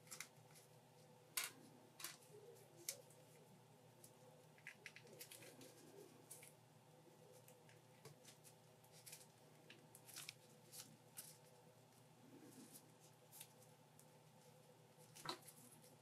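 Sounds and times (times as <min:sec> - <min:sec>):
faint hum: 0:00.0 - 0:16.0.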